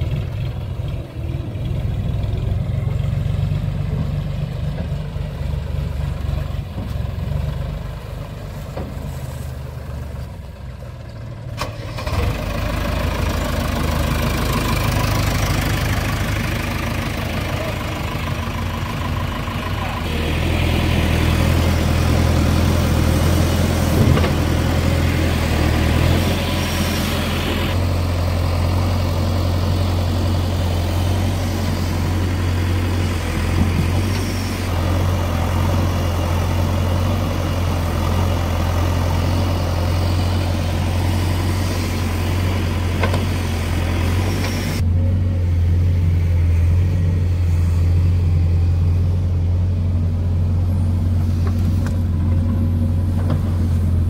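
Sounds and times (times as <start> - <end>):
diesel engine humming: 0.0 - 54.0.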